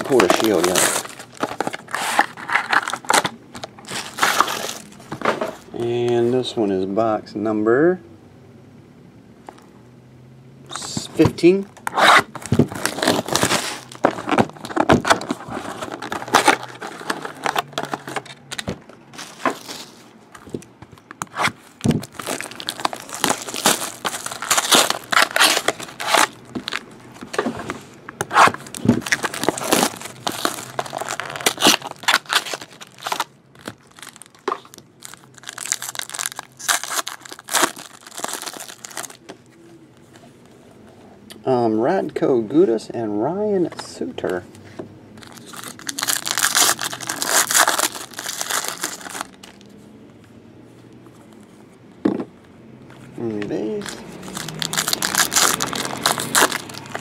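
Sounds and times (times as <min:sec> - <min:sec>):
foil wrappers crinkling and tearing: 0:00.0 - 0:05.0, 0:12.7 - 0:18.6, 0:21.4 - 0:27.3, 0:28.4 - 0:39.2, 0:45.2 - 0:49.7, 0:53.7 - 0:57.0.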